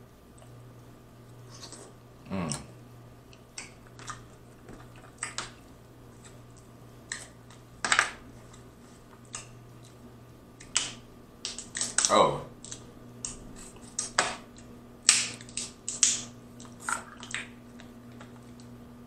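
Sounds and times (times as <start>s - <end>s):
mouth sound: 2.2s - 2.7s
crab shells cracking: 3.3s - 5.6s, 10.6s - 18.7s.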